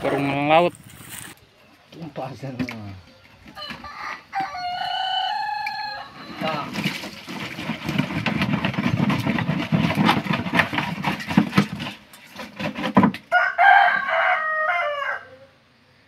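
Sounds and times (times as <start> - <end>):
rooster crowing: 3.5 - 6.6, 13.3 - 15.6
fish slapping onto a heap: 6.6 - 7.8.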